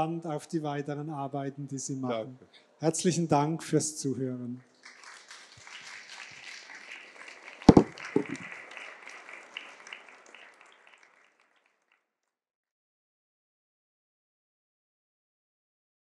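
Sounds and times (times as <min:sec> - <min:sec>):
audience applauding: 0:04.6 - 0:11.9
loud thump: 0:07.7 - 0:08.3.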